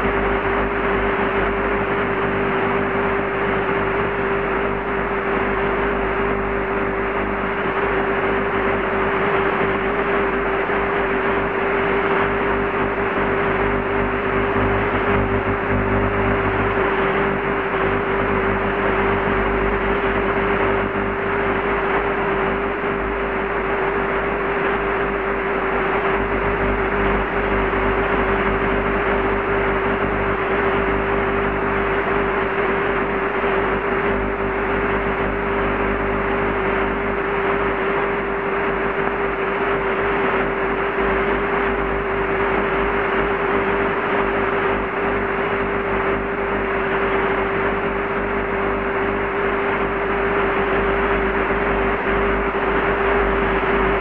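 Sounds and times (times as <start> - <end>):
faint hum: 0.0 - 54.0
television signal buzz: 0.0 - 54.0
steady tone: 13.1 - 23.5.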